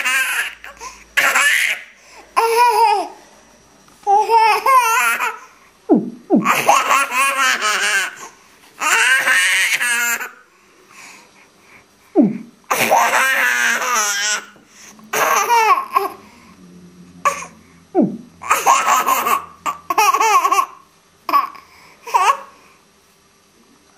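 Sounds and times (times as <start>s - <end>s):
baby girl laughing: 0.0s - 3.2s, 4.1s - 5.4s, 6.4s - 10.4s, 12.7s - 16.2s, 18.4s - 22.5s.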